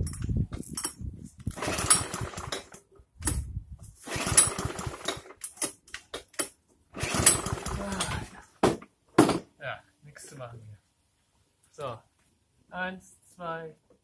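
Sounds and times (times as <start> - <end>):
lawn mower engine turning over: 0.0 - 8.4.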